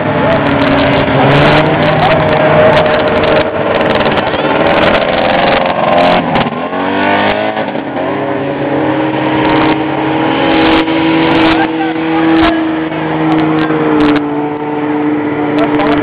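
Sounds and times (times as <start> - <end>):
snowmobile engine revving: 0.0 - 16.0
snowmobile engines running: 0.0 - 16.0.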